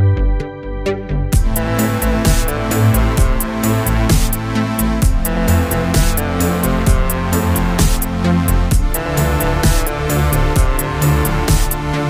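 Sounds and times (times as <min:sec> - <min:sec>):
held synth chords: 0:00.0 - 0:12.0
electronic beat: 0:01.3 - 0:12.0.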